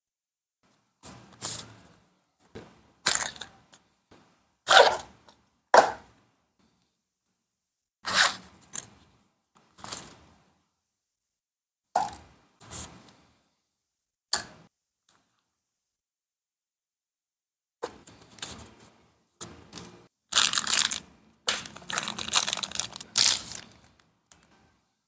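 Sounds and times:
paper and plastic bag rustling: 20.4 - 21.0, 21.6 - 23.9.

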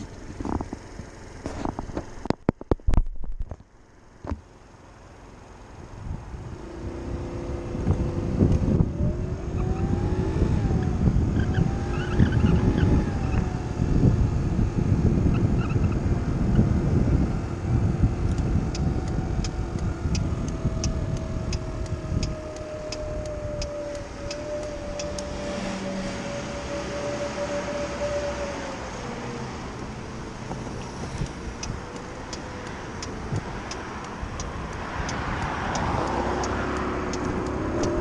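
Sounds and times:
wind rumble on microphone: 0.0 - 4.5, 5.6 - 38.0
scooter engine whine: 0.0 - 38.0
fast light ticks: 18.2 - 25.3, 29.7 - 38.0.

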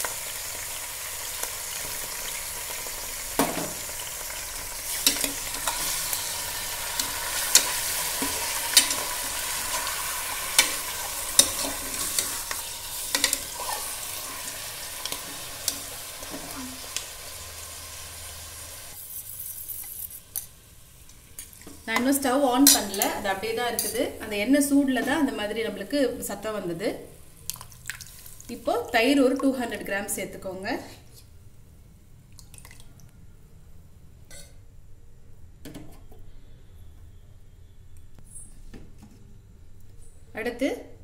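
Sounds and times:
meat sizzling in oil: 0.0 - 21.3
steel spoon scraping a pot: 7.0 - 15.9, 18.9 - 20.5.

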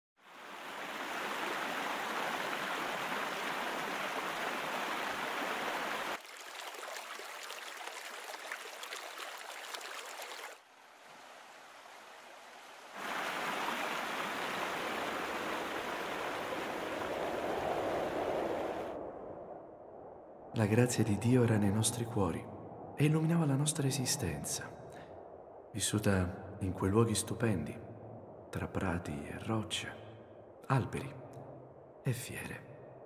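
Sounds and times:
stream rippling over rocks: 0.2 - 18.9
waterfall rushing: 0.3 - 6.2, 11.1 - 17.2.

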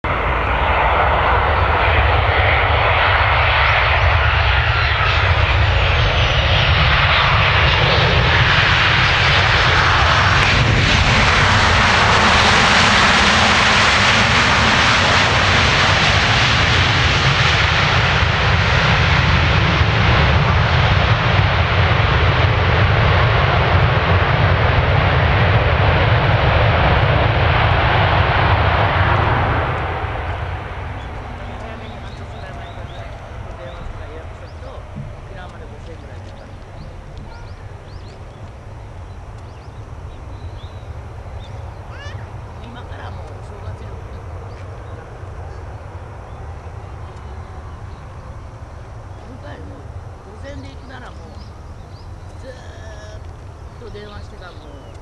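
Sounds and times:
jet engines roaring: 0.0 - 55.0.

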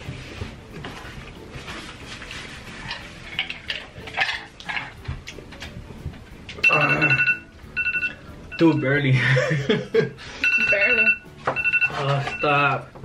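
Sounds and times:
clinks and scrapes on table: 2.8 - 5.0
phone timer alarm beeping: 6.6 - 9.0, 10.4 - 12.9.

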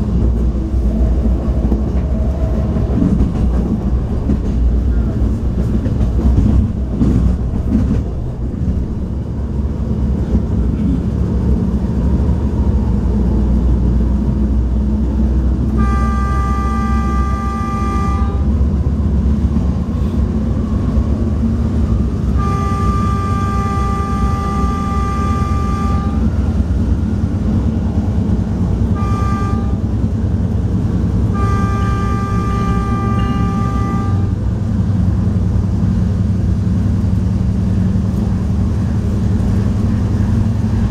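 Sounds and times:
diesel engine running: 0.0 - 40.9
train horn blasts: 15.7 - 18.6, 22.3 - 26.4, 28.9 - 30.0, 31.3 - 34.4.

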